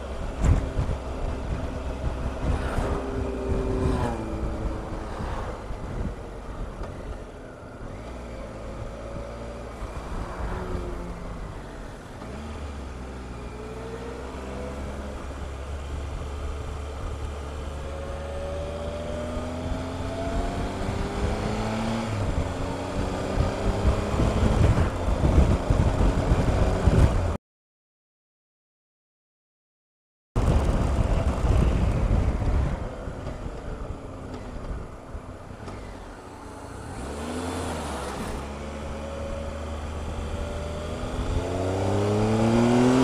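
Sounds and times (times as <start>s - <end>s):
motorcycle engine revving: 0.0s - 6.2s, 7.8s - 27.4s, 35.6s - 43.0s
wind rush: 0.2s - 7.0s, 19.2s - 27.4s, 30.4s - 35.0s.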